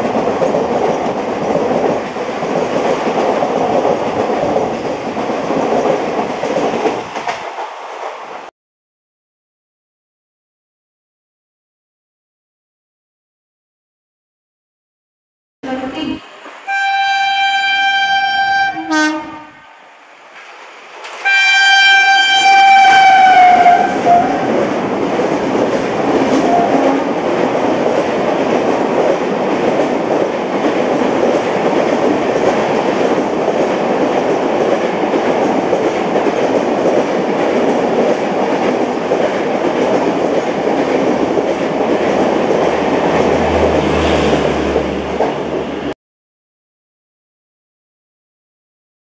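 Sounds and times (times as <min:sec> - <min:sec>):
train passing at speed: 0:00.0 - 0:08.5, 0:15.6 - 0:46.0
locomotive horn blasts: 0:16.7 - 0:19.8, 0:21.2 - 0:24.4.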